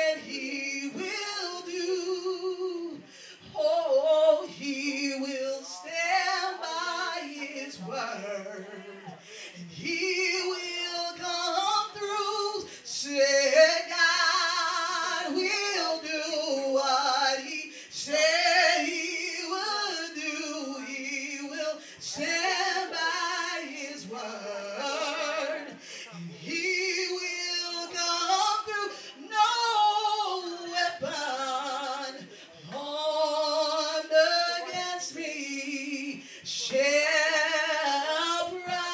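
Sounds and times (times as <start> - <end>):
woman singing into a microphone: 0.0 - 38.9.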